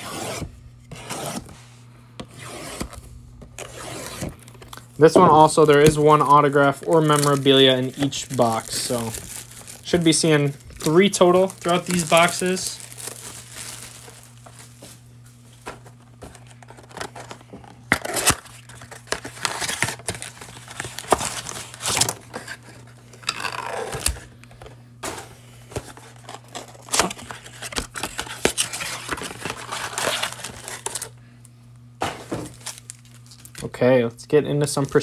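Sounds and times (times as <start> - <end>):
foil card packs rustling: 2.2 - 33.8, 34.6 - 35.0
cardboard crinkling and tearing: 3.6 - 15.0, 15.6 - 24.3, 25.0 - 31.2, 32.0 - 33.7.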